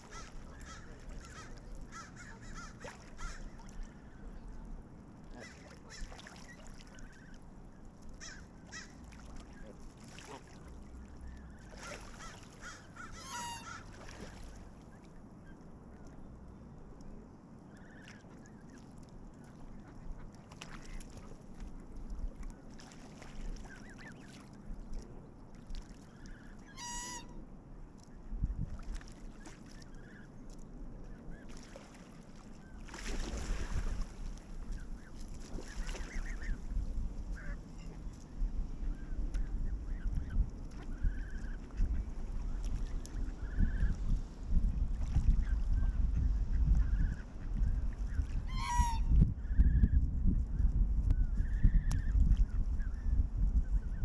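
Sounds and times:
geese honking: 11.5s - 14.0s, 26.2s - 27.4s, 48.5s - 49.1s.

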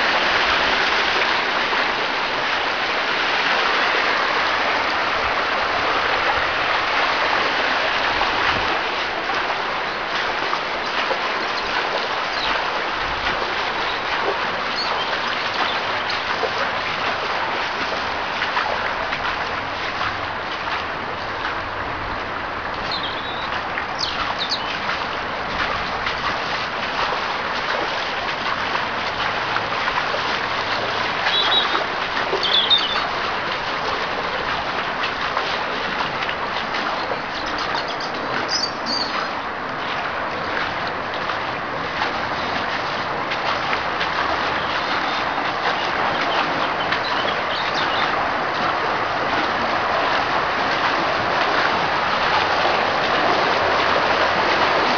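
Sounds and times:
floodwater rushing: 0.0s - 54.9s
high bird chirps: 22.9s - 24.7s, 31.3s - 31.8s, 32.4s - 33.0s, 37.8s - 39.2s.

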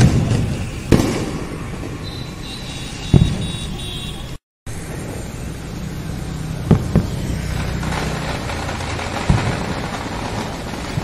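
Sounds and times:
firecracker bang: 0.0s - 3.8s, 6.6s - 11.0s
scooter and motorbike traffic: 0.0s - 11.0s.

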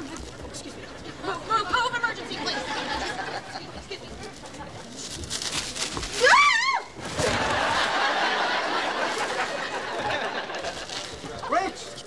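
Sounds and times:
studio audience laughing: 2.3s - 3.8s, 7.3s - 10.9s.

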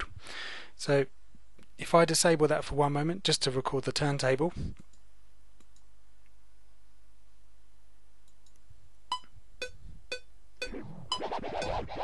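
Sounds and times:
metronome click-beeps: 9.1s - 10.7s.

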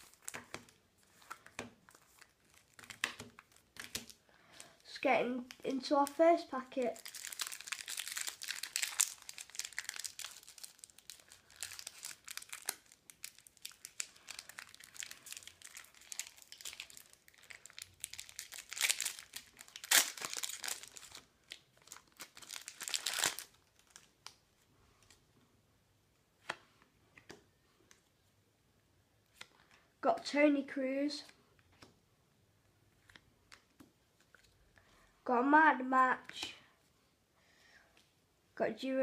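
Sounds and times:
foil packet tearing and crinkling: 6.8s - 24.1s.

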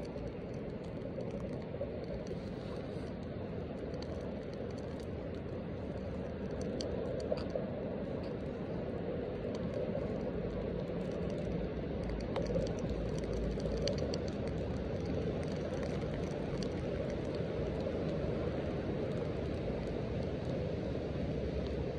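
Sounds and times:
rain pattering on a rain jacket: 0.0s - 21.9s.

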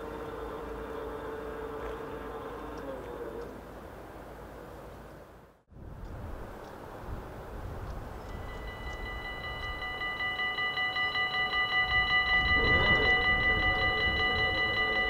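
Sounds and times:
low hum of barrier: 0.0s - 15.0s
high-pitched warning bells ringing: 8.2s - 15.0s
lower-pitched bells: 8.2s - 15.0s.

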